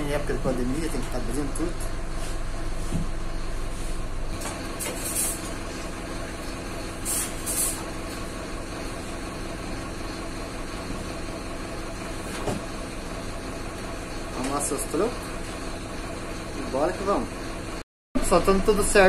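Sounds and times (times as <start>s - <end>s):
bus engine idling: 0.0s - 19.0s
short air hisses: 7.0s - 7.9s.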